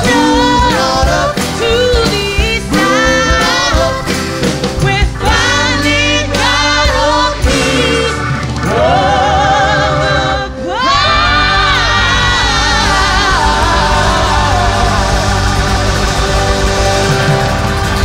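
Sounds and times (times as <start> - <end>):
woman singing lead: 0.0 - 16.9
live band playing: 0.0 - 18.0.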